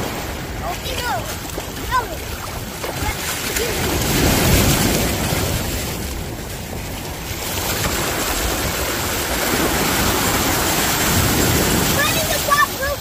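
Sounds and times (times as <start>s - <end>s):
waves washing onto shore: 0.0s - 13.0s.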